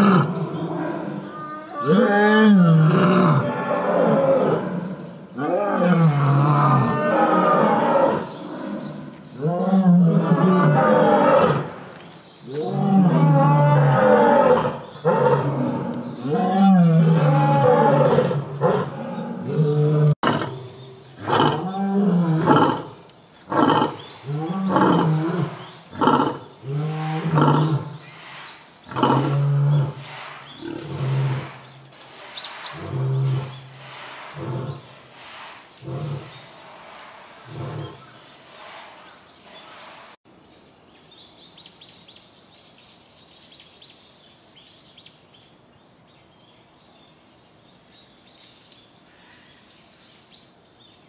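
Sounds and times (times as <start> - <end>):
lion roaring: 12.5 - 22.9.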